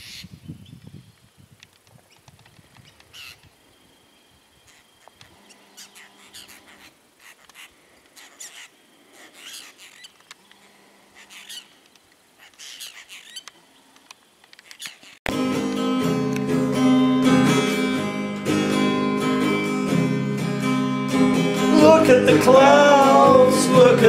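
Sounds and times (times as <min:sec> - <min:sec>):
birds rasping calls: 0:02.8 - 0:03.5, 0:04.6 - 0:15.2
faint clicks: 0:13.4 - 0:15.0.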